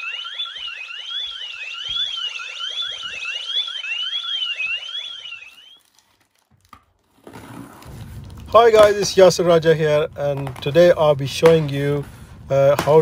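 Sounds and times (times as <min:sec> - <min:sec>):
fast rising electronic chirps: 0:00.0 - 0:05.8
warbling alarm siren: 0:00.0 - 0:05.9.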